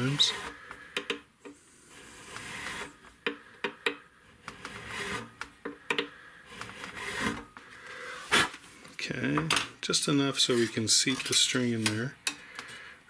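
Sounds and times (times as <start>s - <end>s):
file rasping in a slot: 1.5s - 2.9s, 4.4s - 5.4s.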